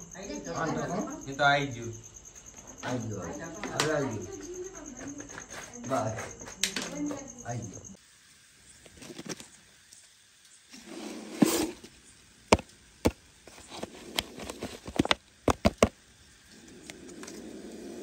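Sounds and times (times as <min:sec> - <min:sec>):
plastic jar clicks and knocks: 0:14.2 - 0:15.9.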